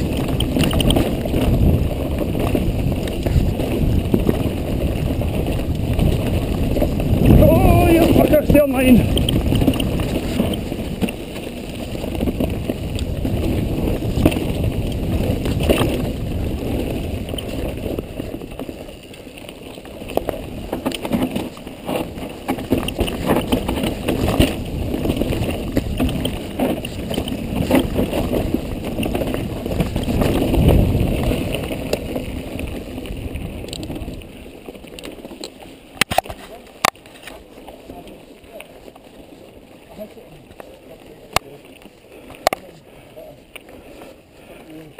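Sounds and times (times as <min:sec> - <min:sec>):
wind buffeting microphone: 0:00.0 - 0:35.0
bike knocking and rattling: 0:00.0 - 0:44.9
bike tyre rumble on dirt: 0:00.0 - 0:44.9.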